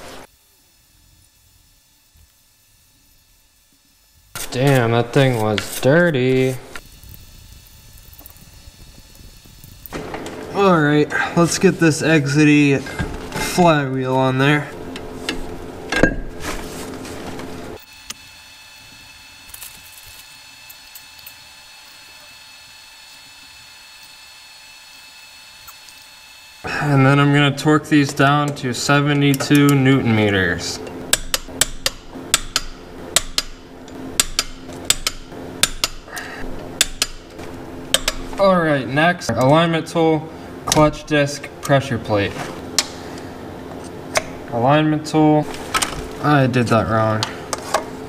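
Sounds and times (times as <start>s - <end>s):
steady hiss: 0.0s - 48.0s
torque wrench clicking: 30.8s - 38.4s
metal clicks and knocks: 37.9s - 38.3s.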